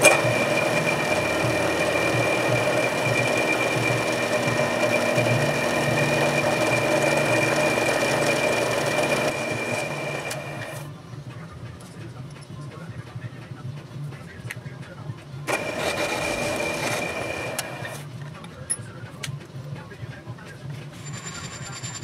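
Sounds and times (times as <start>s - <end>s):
drill press whining: 0.0s - 10.9s, 15.5s - 18.1s.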